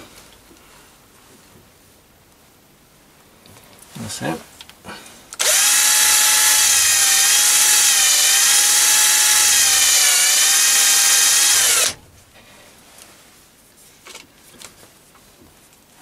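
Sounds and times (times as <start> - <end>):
cordless drill motor whining: 5.4 - 12.0.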